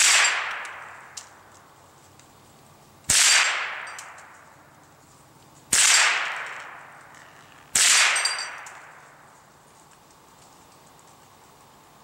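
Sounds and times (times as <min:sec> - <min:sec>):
rifle shots: 0:00.0 - 0:01.1, 0:03.1 - 0:04.2, 0:05.7 - 0:06.9, 0:07.7 - 0:09.0
metallic ring of steel target: 0:00.0 - 0:01.2, 0:03.1 - 0:04.4, 0:07.8 - 0:09.1.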